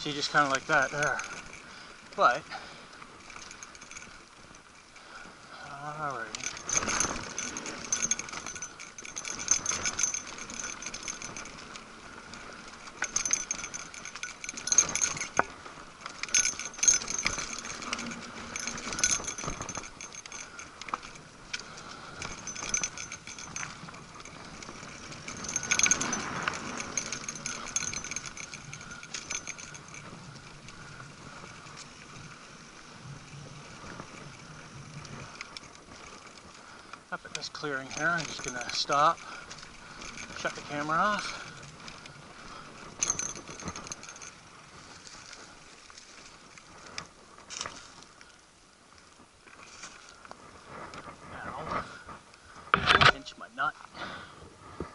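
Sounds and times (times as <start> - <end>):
bike chain and parts jangling: 0.0 - 54.9
tyres rolling over dirt and leaves: 0.0 - 54.9.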